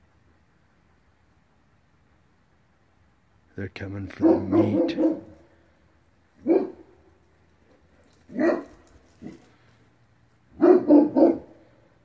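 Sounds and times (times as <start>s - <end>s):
dog barking: 4.1s - 5.5s, 6.4s - 7.0s, 8.3s - 9.4s, 10.5s - 11.7s.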